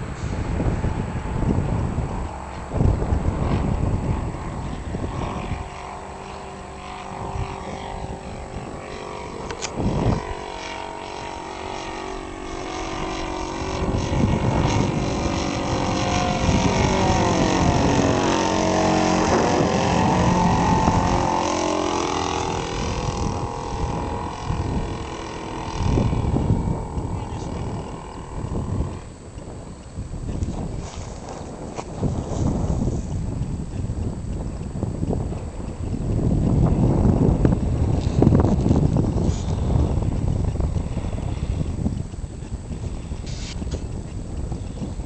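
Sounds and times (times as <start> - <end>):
model plane engine buzzing: 0.0 - 45.0.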